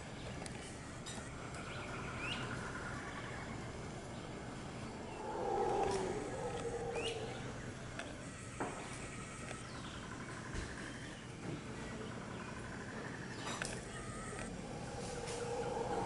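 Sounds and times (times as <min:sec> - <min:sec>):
bird chirping: 0:04.2 - 0:08.2
monkey howling: 0:04.9 - 0:07.9, 0:14.6 - 0:16.0.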